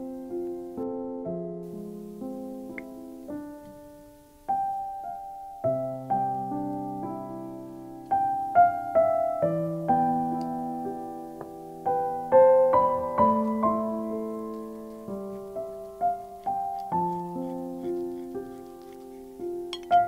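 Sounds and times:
slow gentle piano music: 0:00.0 - 0:20.0.

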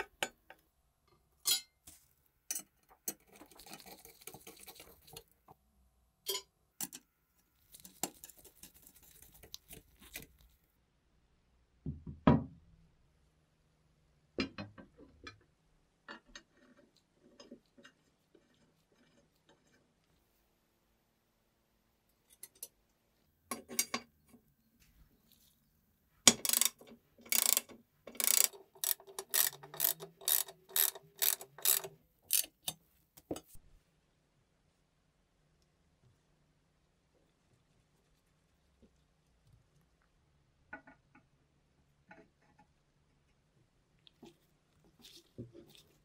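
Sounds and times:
bread slicer mechanism clicking: 0:26.4 - 0:32.5
rasping clicking strokes: 0:26.4 - 0:32.8.

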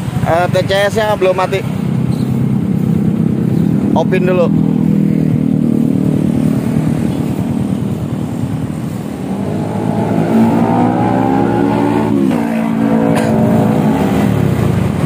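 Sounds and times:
scooter engine revving: 0:04.6 - 0:15.0.

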